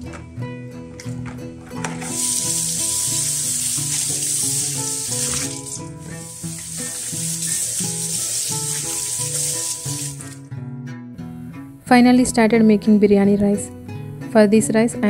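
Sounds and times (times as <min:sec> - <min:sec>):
background music: 0:00.0 - 0:15.0
tap water splashing on bowls: 0:01.8 - 0:10.4.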